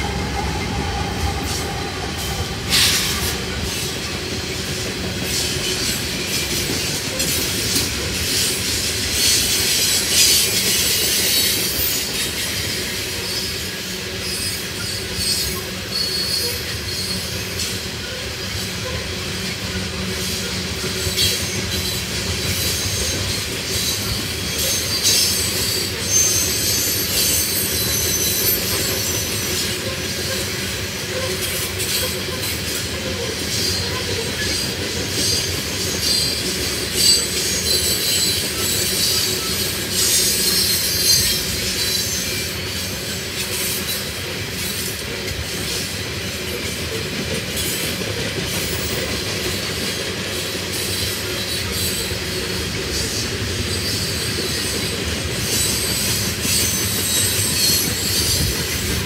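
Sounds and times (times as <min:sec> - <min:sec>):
train wheels rumbling and clacking: 0:00.0 - 0:59.0
high wheel squeal: 0:08.3 - 0:19.6, 0:20.2 - 0:45.0, 0:50.8 - 0:59.0.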